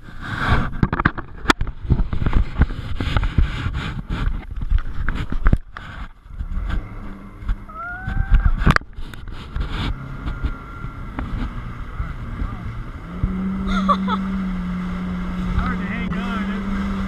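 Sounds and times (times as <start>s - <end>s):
jet ski engine rumbling: 0.0s - 17.0s
wind buffeting microphone: 0.0s - 17.0s
jet ski slapping over waves: 0.1s - 17.0s
rising whine: 6.2s - 17.0s.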